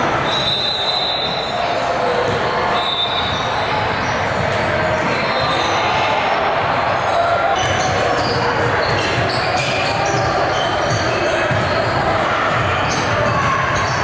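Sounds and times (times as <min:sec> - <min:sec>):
hubbub of voices: 0:00.0 - 0:14.0
basketball bouncing on court: 0:07.6 - 0:14.0.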